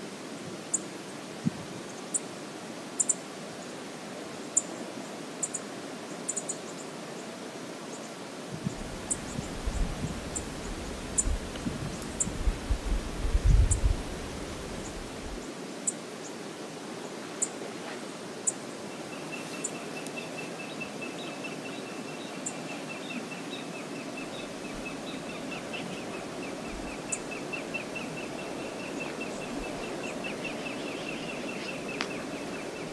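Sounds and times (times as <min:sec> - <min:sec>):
river flowing over shallows: 0:00.0 - 0:32.9
wind buffeting microphone: 0:08.5 - 0:15.4.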